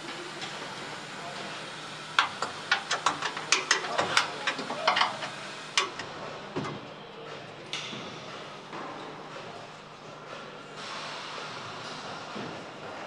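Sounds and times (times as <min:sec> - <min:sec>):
steady factory hum: 0:00.0 - 0:13.0
machinery clicking and clacking: 0:02.1 - 0:09.4.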